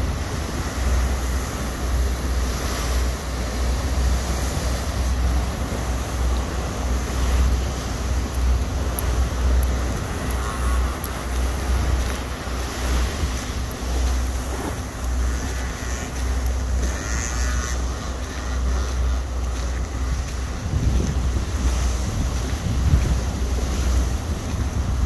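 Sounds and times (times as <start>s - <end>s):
rough surf washing: 0.0s - 25.0s
wind buffeting microphone: 0.0s - 25.0s.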